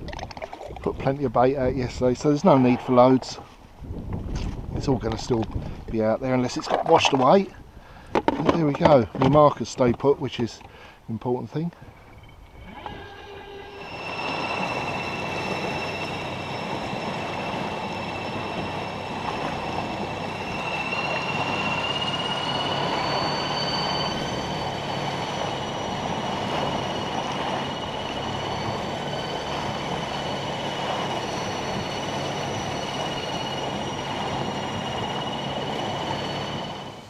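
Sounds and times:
rushing water: 0.0s - 3.6s, 11.9s - 37.0s
wind: 0.0s - 37.0s
electric outboard motor whine: 11.8s - 37.0s.

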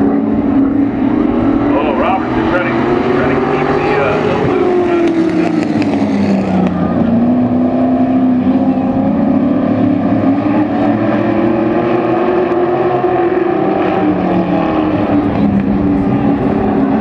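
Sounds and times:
racing truck engines: 0.0s - 17.0s.

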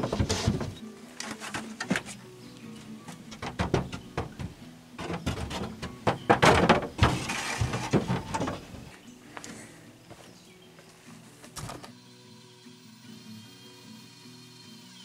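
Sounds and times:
knocks and thuds: 0.0s - 0.8s, 3.3s - 8.9s.

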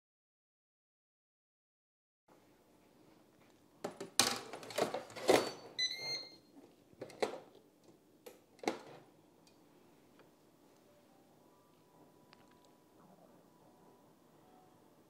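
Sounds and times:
short electronic beep: 5.4s - 6.4s.

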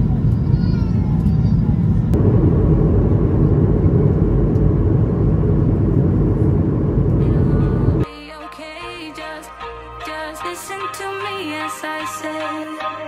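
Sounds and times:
jet airliner cabin noise: 0.0s - 8.1s
music: 7.3s - 13.0s.

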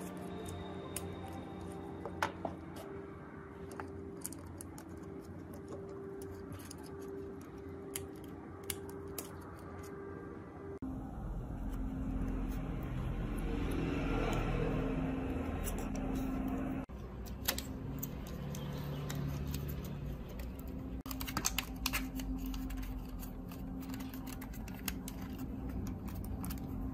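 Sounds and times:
steady low hum: 0.0s - 18.6s.

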